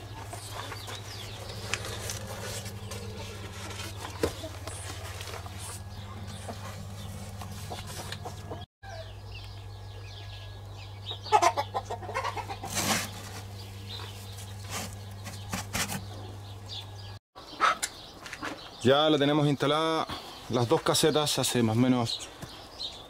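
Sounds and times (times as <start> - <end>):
steady low hum: 0.0 - 17.2
hens clucking: 0.1 - 8.7, 11.0 - 14.2.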